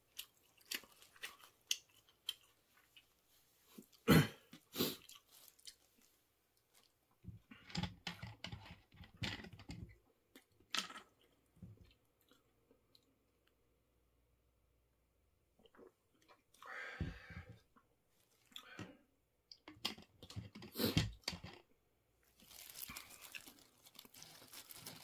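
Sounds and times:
chewing and mouth sounds: 0:00.0 - 0:03.2, 0:04.6 - 0:07.0.

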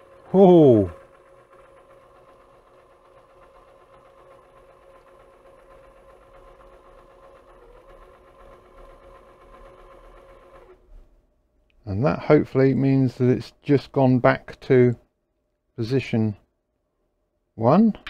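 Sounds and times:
disc changer carousel whirring: 0:00.0 - 0:10.8.

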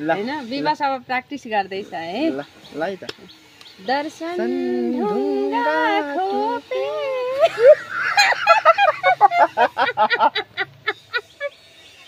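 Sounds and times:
woman and man singing: 0:03.9 - 0:07.8
hearty laughter: 0:07.3 - 0:11.7.

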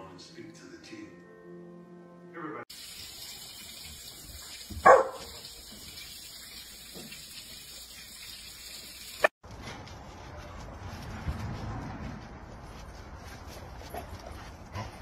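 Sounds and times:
puppy barking: 0:04.8 - 0:05.4.

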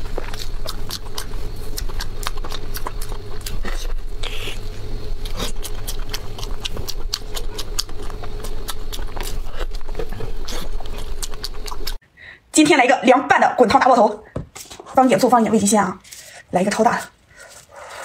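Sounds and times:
mouth chewing wetly: 0:00.0 - 0:12.0
steady low hum: 0:00.0 - 0:18.0.

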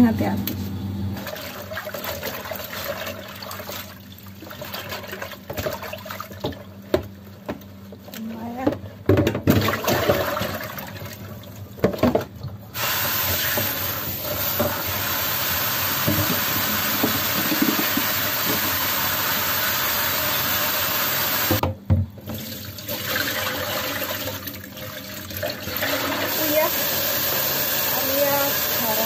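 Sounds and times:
leaves rinsed by hand: 0:12.8 - 0:21.5, 0:22.3 - 0:29.0
tap water running into sink: 0:12.8 - 0:29.0.

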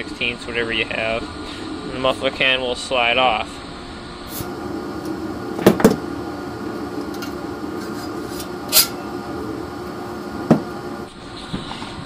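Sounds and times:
metallic scrape: 0:07.8 - 0:09.0.

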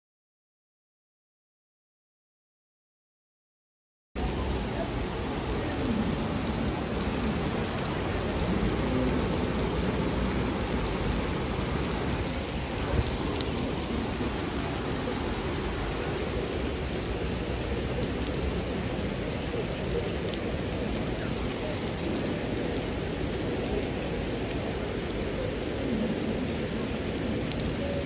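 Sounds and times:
heavy rain on cobblestones: 0:04.2 - 0:28.0.

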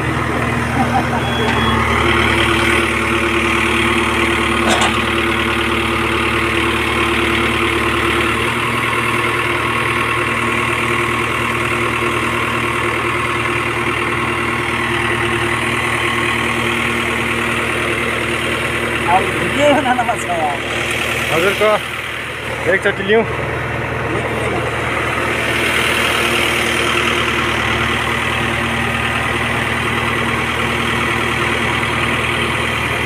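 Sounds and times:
diesel engine idling: 0:00.0 - 0:33.0.

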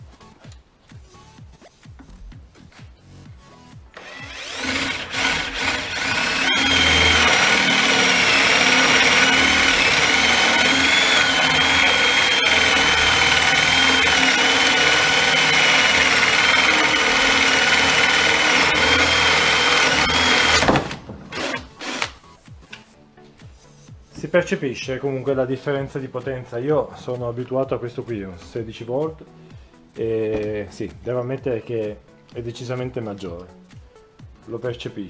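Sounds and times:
drill boring through wood: 0:04.0 - 0:22.2.

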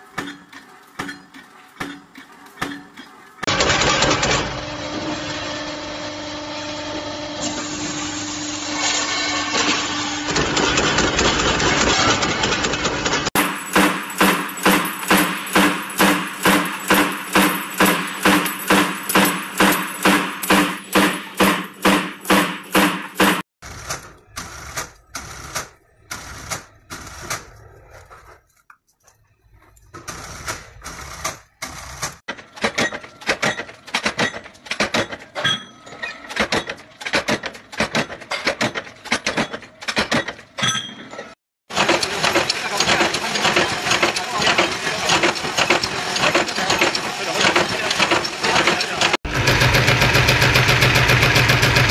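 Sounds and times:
machine striking metal discs: 0:00.0 - 0:05.7, 0:08.8 - 0:27.5, 0:29.9 - 0:51.9
power press stamping sheet steel: 0:00.0 - 0:27.6, 0:30.0 - 0:51.9
industrial sewing machine stitching: 0:03.4 - 0:04.9, 0:10.3 - 0:27.6, 0:41.7 - 0:51.9.

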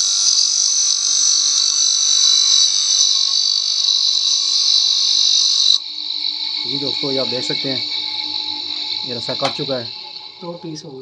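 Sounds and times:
grinder cutting steel wire: 0:08.7 - 0:09.8.

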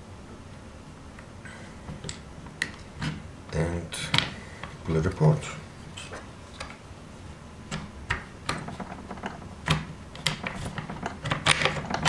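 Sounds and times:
sharp clicks and light knocks: 0:07.7 - 0:12.0.

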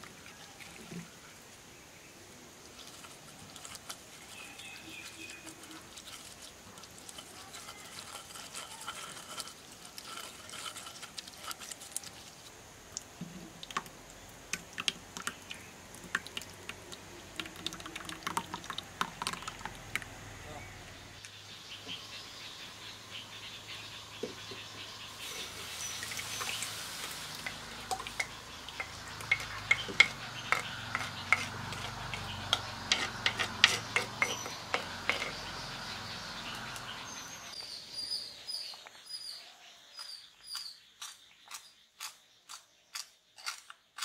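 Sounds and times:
pulp scraped through wire strainer: 0:02.8 - 0:12.4
juice dripping into bowl: 0:10.0 - 0:20.2, 0:25.8 - 0:30.7.

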